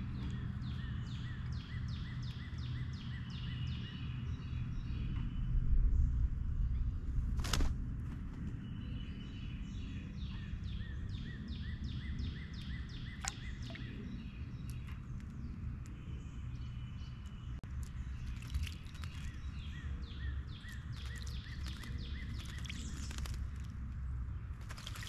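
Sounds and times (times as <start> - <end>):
low outdoor rumble: 0.0 - 25.0.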